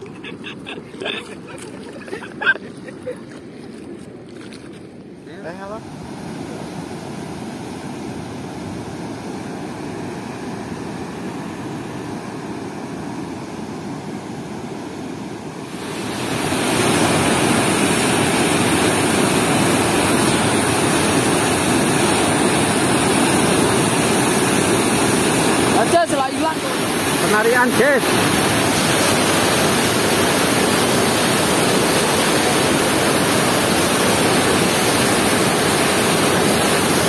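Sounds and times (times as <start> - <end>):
river water rushing: 0.0 - 5.0, 15.2 - 37.0.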